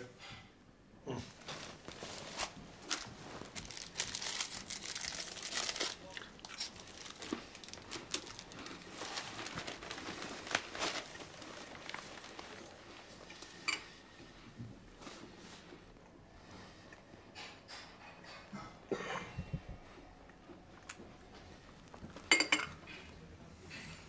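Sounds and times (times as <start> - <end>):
newspaper rustling and crinkling: 1.4 - 13.3.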